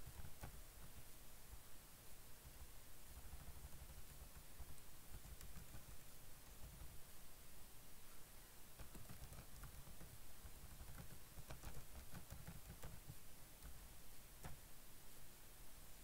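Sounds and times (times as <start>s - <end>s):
faint keyboard clicking: 0.0s - 1.1s, 2.4s - 7.0s, 8.7s - 14.7s.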